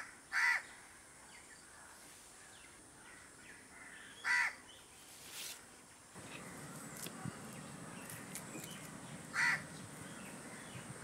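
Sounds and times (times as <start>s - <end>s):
crow cawing: 0.3s - 0.7s, 3.1s - 4.6s, 9.3s - 10.8s.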